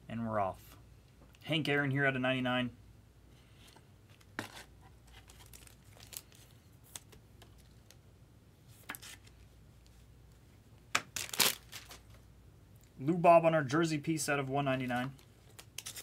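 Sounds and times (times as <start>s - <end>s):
foil wrapper crinkling and tearing: 5.2s - 7.1s, 11.0s - 12.0s, 15.4s - 16.0s.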